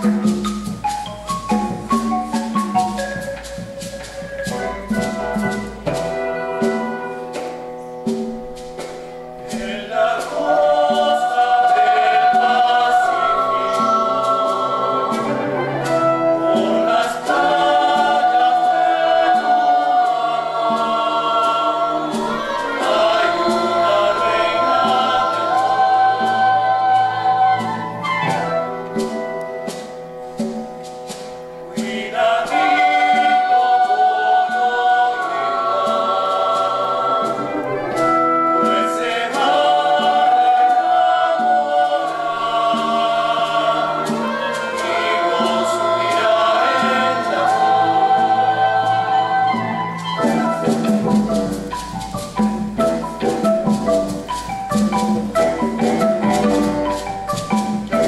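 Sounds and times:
mixed choir singing: 0:00.0 - 0:00.5, 0:08.8 - 0:29.8, 0:31.6 - 0:58.0
orchestra playing: 0:00.0 - 0:58.0.

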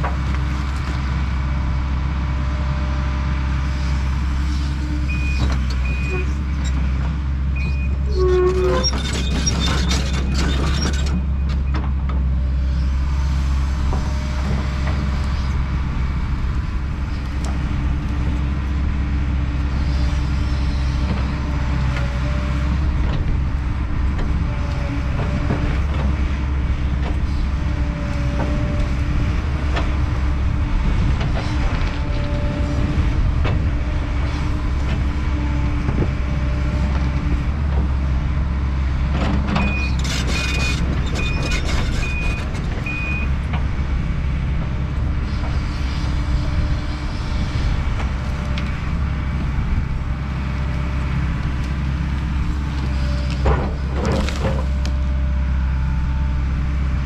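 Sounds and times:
excavator diesel engine running: 0:00.0 - 0:57.0.

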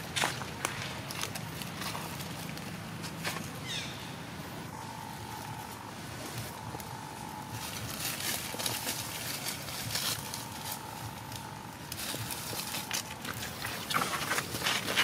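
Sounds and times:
dry leaves crackling and rustling: 0:00.0 - 0:03.8, 0:04.8 - 0:15.0
faint steady tone: 0:04.3 - 0:13.6.

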